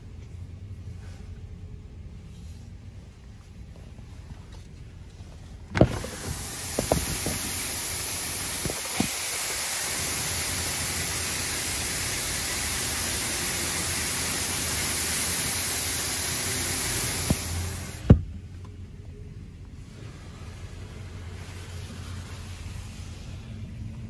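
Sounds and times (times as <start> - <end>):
high-pressure water spray hissing: 5.8 - 18.1.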